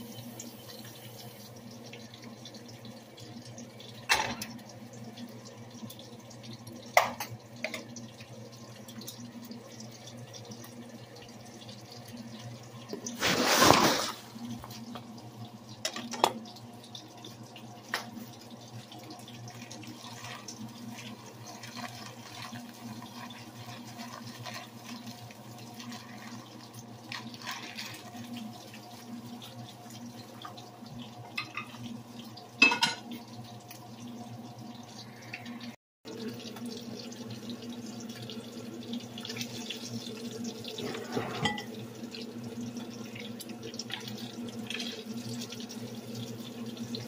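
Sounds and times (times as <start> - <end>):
water heating in a pot: 0.0 - 47.0
rice poured from a bag: 13.2 - 14.4.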